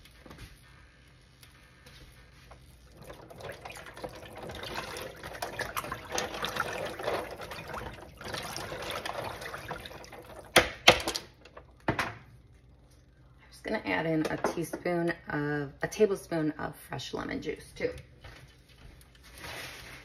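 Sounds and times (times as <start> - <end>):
soup sloshing while stirred: 2.3 - 10.6.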